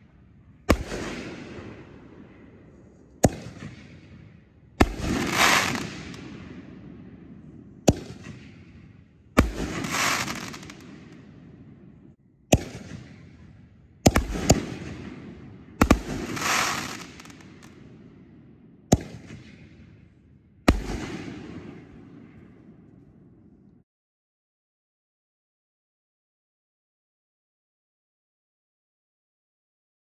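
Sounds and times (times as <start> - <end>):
firework hiss: 5.2 - 5.9, 9.7 - 10.8, 16.2 - 17.4.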